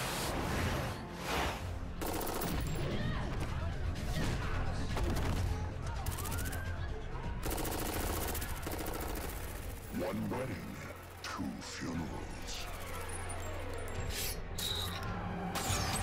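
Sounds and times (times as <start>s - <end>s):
automatic gunfire bursts: 2.0s - 2.7s, 7.4s - 9.9s.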